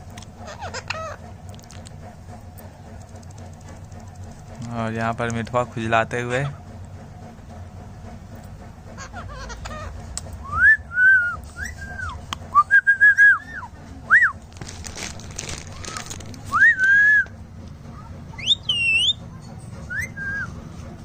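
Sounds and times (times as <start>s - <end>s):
harsh parakeet call: 0.4s - 1.2s, 9.0s - 10.0s
parakeet whistled calls: 18.4s - 19.2s, 19.9s - 20.5s.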